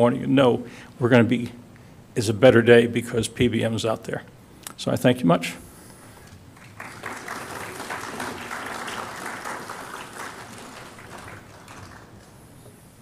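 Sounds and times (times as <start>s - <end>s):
audience applauding: 6.2s - 12.8s.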